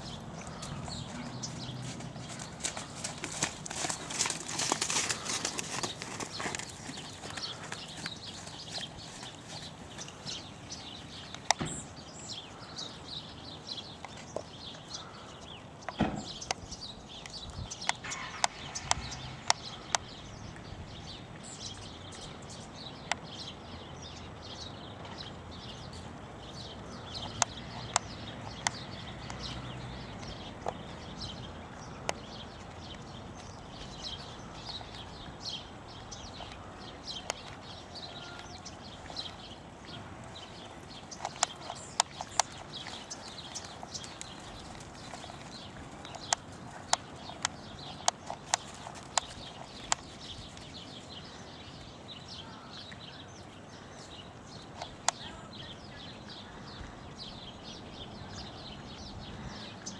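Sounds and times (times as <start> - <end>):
birds chirping: 0.0 - 59.9
horse hoofbeats on sand: 0.4 - 10.5.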